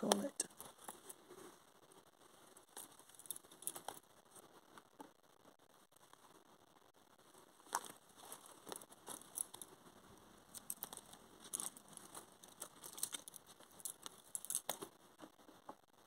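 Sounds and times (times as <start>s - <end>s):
wooden bobbins clicking: 7.6s - 16.0s.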